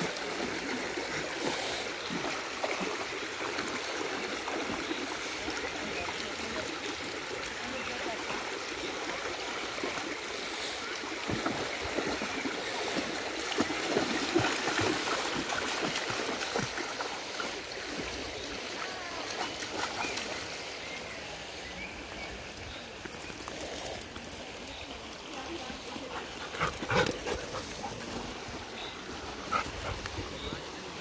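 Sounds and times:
stream flowing over stones: 0.0 - 31.0
dogs splashing in water: 11.2 - 20.5, 26.0 - 30.8.

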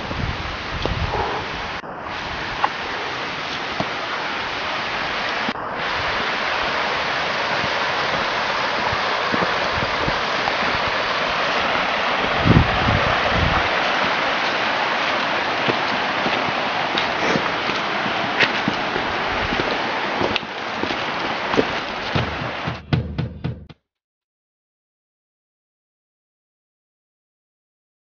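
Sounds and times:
stream water flowing: 0.0 - 22.8
low thumps: 15.7 - 23.7.

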